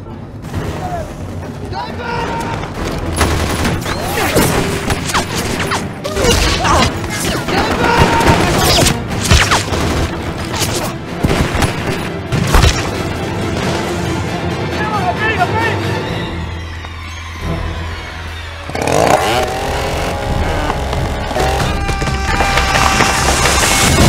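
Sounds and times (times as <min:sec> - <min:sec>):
background music: 0:00.0 - 0:24.0
gunshots and impacts: 0:02.7 - 0:13.8.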